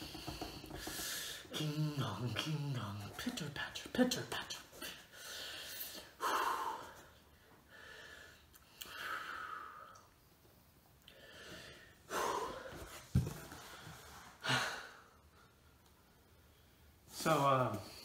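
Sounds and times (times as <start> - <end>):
man breathing and sighing: 11.0 - 15.3.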